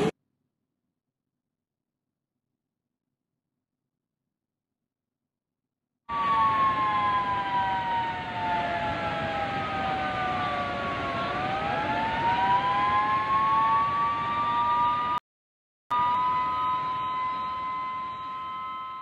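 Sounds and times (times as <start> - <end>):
warning siren wailing: 6.1 - 15.2, 15.9 - 19.0.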